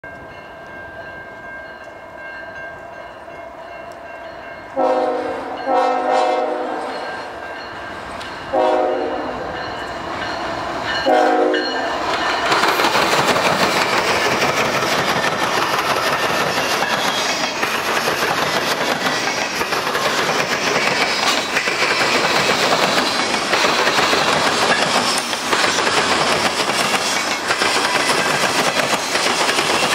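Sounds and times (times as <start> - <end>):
locomotive rumbling: 4.5 - 29.9
locomotive air horn blasts: 4.8 - 7.0, 8.5 - 9.5, 11.0 - 11.8
freight cars clacking on rails: 9.5 - 29.9.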